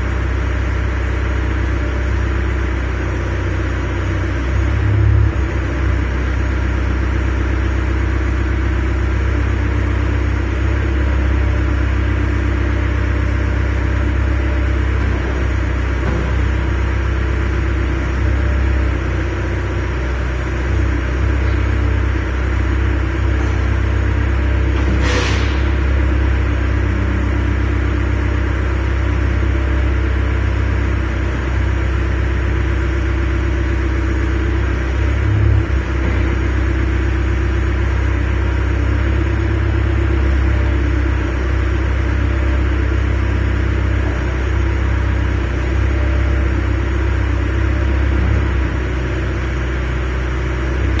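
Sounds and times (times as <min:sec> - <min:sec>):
excavator diesel engine rumbling: 0:00.0 - 0:51.0.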